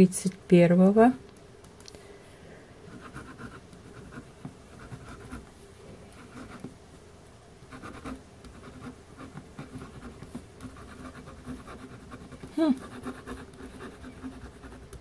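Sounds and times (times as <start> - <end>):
pen writing on paper: 3.0 - 5.4, 7.7 - 15.0.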